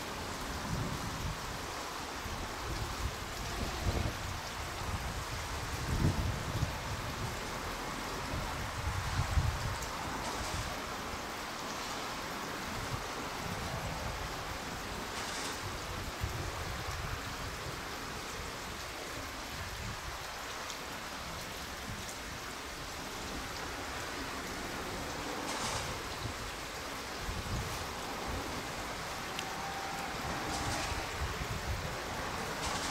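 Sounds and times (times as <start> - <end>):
even hiss: 23.1 - 32.9.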